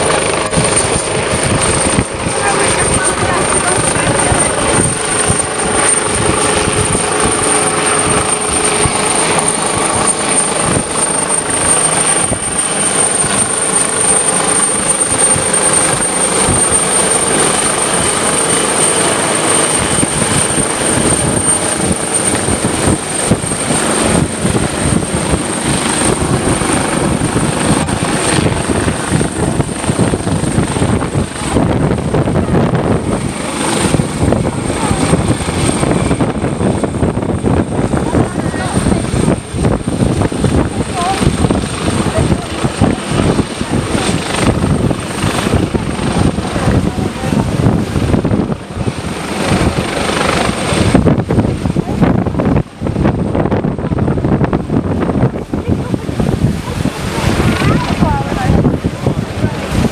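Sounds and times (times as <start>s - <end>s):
helicopter high whine: 0.0s - 59.9s
helicopter rotor chop: 0.0s - 59.9s.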